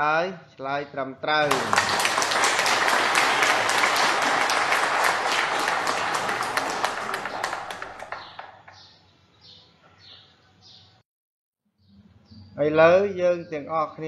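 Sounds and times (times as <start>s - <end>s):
hands clapping: 1.4s - 8.9s.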